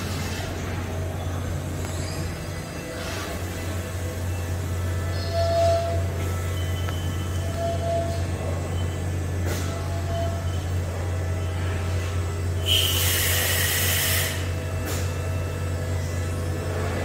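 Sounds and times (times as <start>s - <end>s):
machine humming: 0.0s - 17.0s
compressed air hiss: 12.6s - 15.0s.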